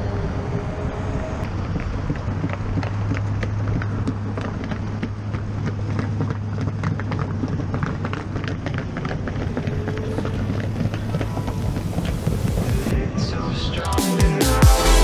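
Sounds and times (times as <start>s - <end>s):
motorcycle engine drone: 0.0s - 13.9s
road and wind noise: 0.0s - 14.0s.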